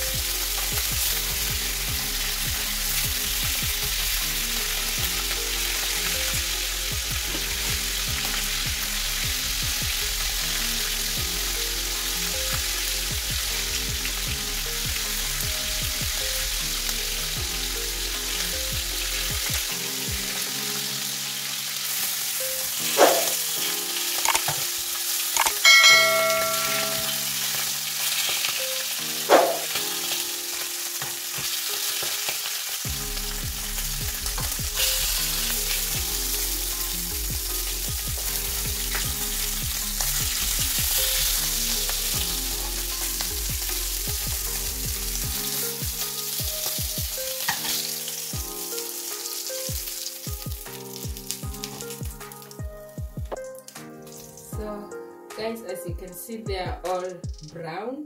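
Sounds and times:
meat sizzling in hot oil: 0:00.0 - 0:53.0
knife and fork knocking pan: 0:23.0 - 0:23.3, 0:29.3 - 0:29.7.

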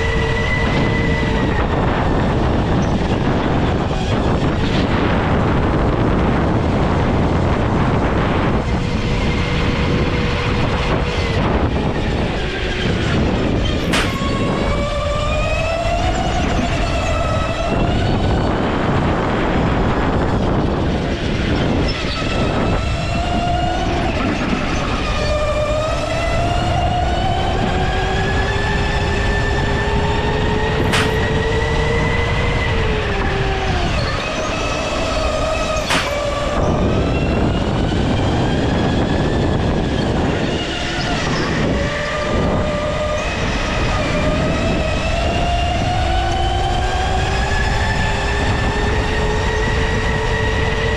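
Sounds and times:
go-kart motor revving: 0:07.2 - 0:50.9
sharp clicks: 0:35.8 - 0:36.2.

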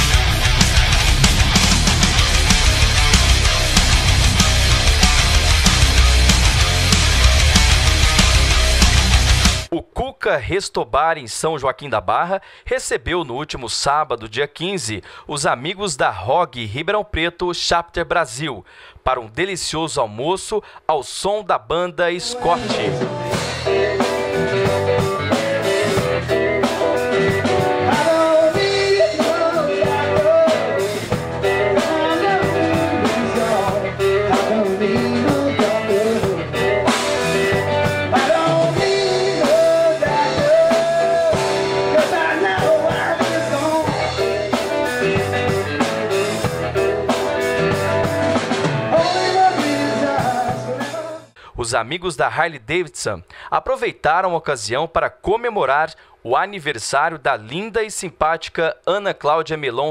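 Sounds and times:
drum kit: 0:00.0 - 0:09.7, 0:22.4 - 0:51.3
electric guitar: 0:00.0 - 0:09.7, 0:22.4 - 0:51.3
keyboard: 0:00.0 - 0:09.7, 0:22.2 - 0:51.4
man singing: 0:21.6 - 0:47.0, 0:48.8 - 0:52.3.

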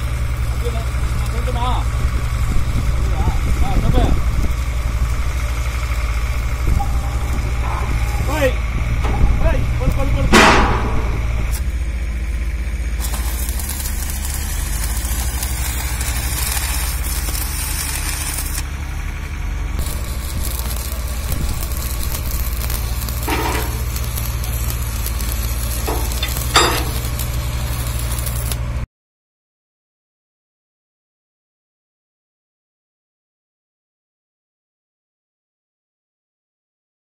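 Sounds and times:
arc welding crackling: 0:00.0 - 0:28.8
low machine hum: 0:00.0 - 0:28.8
metallic knocks: 0:25.9 - 0:27.2.

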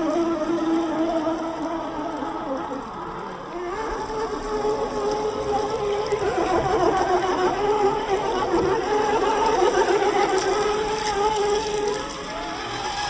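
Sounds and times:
water splashing around wheels: 0:00.0 - 0:13.0.

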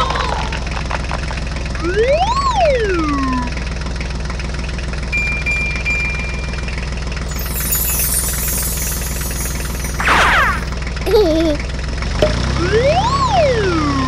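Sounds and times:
thin high tone: 0:05.2 - 0:11.6.

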